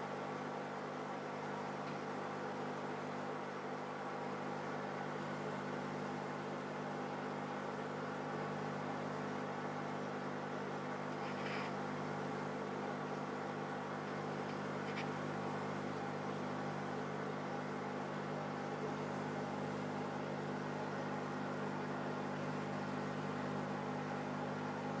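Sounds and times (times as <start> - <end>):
aquarium equipment humming: 0.0 - 25.0.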